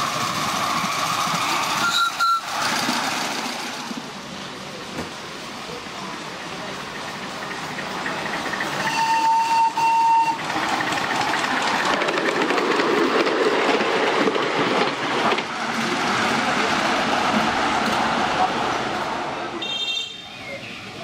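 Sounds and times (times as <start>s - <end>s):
train wheels rattling on rails: 0.0s - 19.8s
locomotive whistle: 1.7s - 2.5s, 8.8s - 10.5s, 19.6s - 20.3s.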